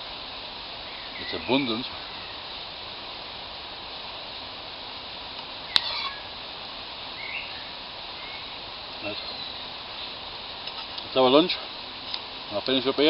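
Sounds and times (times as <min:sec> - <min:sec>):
steady hiss: 0:00.0 - 0:13.0
bird chirps: 0:00.8 - 0:02.5, 0:07.2 - 0:10.1.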